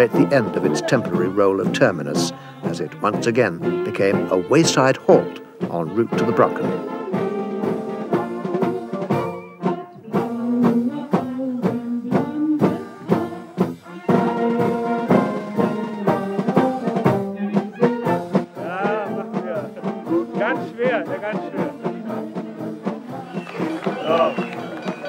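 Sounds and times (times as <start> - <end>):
tuba bass line: 0.0 - 9.2
brass band playing: 0.0 - 25.0.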